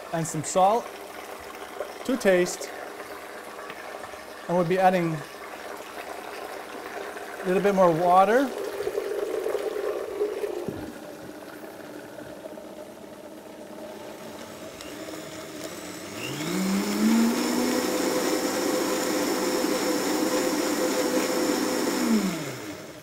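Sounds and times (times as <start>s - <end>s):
blender motor spinning up: 8.4s - 23.0s.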